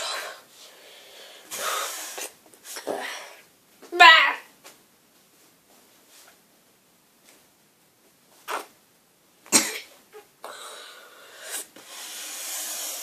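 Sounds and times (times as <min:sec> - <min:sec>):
boy coughing and gagging: 0:09.5 - 0:10.0.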